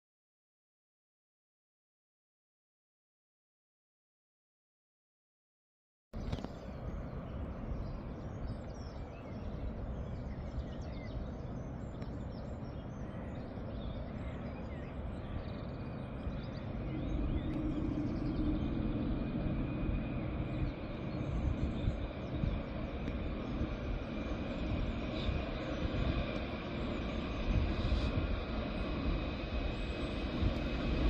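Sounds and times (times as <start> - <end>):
birds chirping faintly: 6.2 - 31.0
diesel locomotive engine rumble: 6.6 - 31.0.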